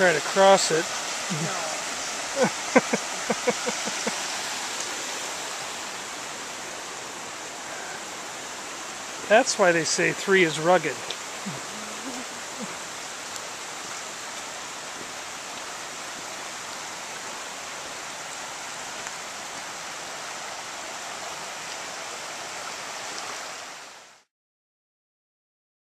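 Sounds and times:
creek water over rocks: 0.0 - 24.3.

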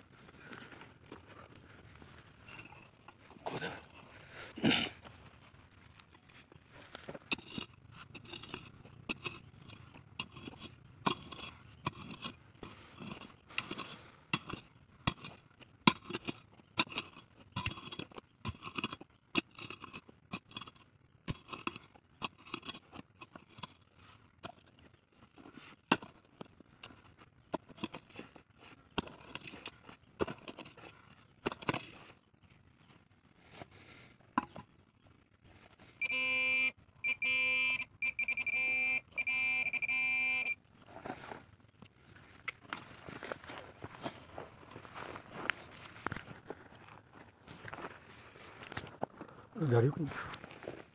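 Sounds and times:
hoe chopping stony soil: 6.8 - 20.6
metal detector buzzing: 36.0 - 40.6.

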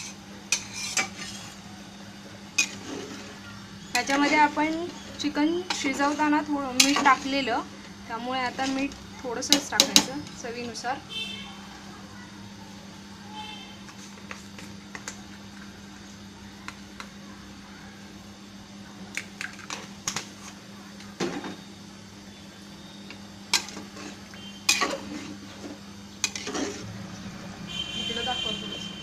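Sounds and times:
steady low hum: 0.0 - 29.0
metal utensils clinking on pots: 2.6 - 3.2, 4.0 - 4.9, 5.6 - 7.4, 23.5 - 25.4, 26.2 - 26.8.

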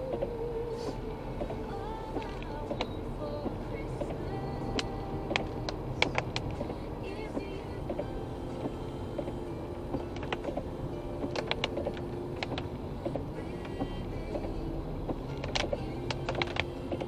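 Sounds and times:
engine and tyres humming: 0.0 - 17.0.

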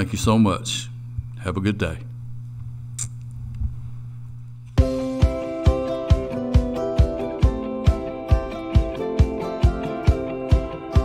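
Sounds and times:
low electrical hum: 0.0 - 4.8.

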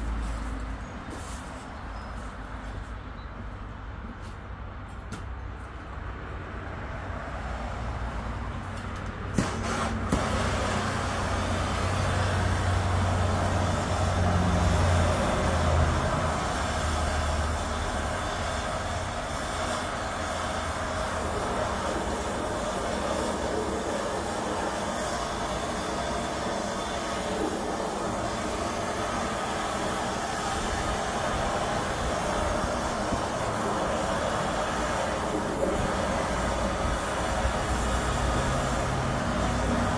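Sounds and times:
gas torch hissing: 8.7 - 39.9.

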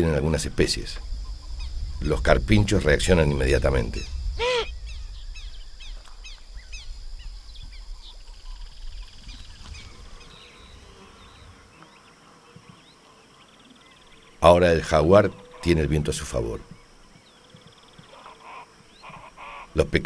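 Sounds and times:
birds chirping: 0.0 - 20.0
insects buzzing: 0.0 - 20.0
capybara alarm call: 4.4 - 4.7, 18.0 - 19.8.

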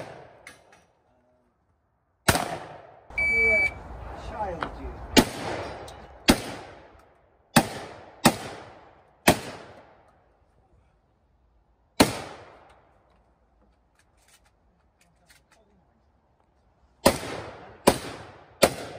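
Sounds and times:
shotgun shots with echo: 2.3 - 3.0, 5.2 - 5.7, 6.3 - 6.9, 7.5 - 9.9, 12.0 - 12.6, 17.0 - 18.9.

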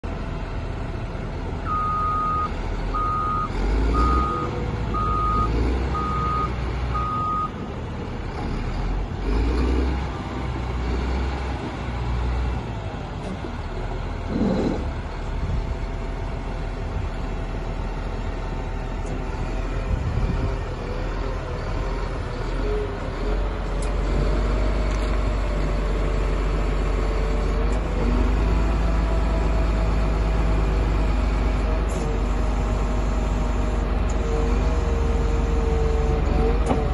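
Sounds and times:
diesel engine running: 0.0 - 36.9
reversing alarm beeps: 1.7 - 7.5.

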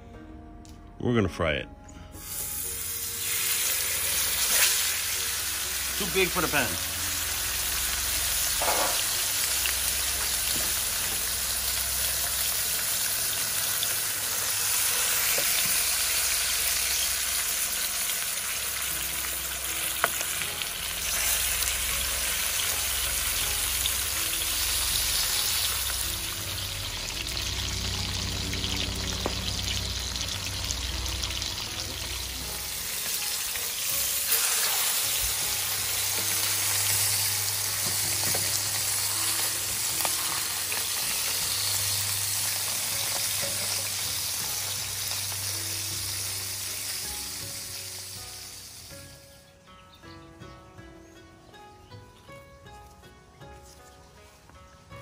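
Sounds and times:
fish sizzling in hot oil: 2.2 - 49.2.

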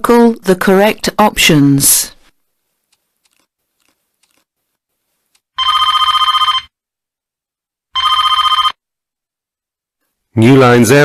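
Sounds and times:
telephone ringing with warbling trill: 5.6 - 6.8, 7.9 - 8.8.

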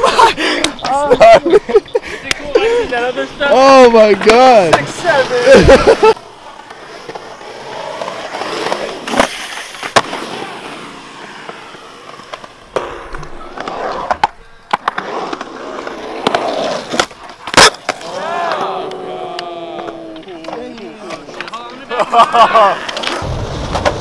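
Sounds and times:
skateboard wheels rolling on concrete: 0.0 - 24.0
skateboard clacks on concrete: 4.1 - 5.2, 11.4 - 21.8.

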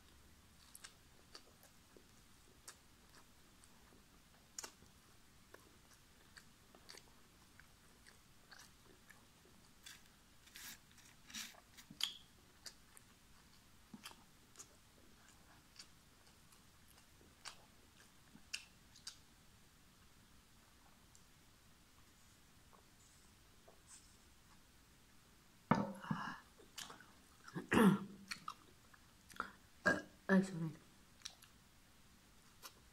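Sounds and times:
chewing and crunching food: 0.0 - 19.3, 26.5 - 27.6, 28.2 - 29.6, 31.2 - 31.6.

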